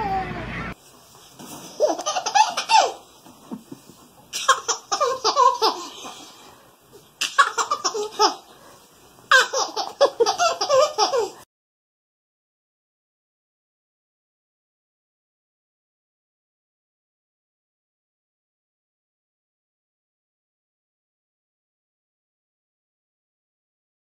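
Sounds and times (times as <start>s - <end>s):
baby laughing: 1.7s - 3.0s, 3.6s - 6.3s, 7.2s - 8.5s, 9.3s - 11.4s.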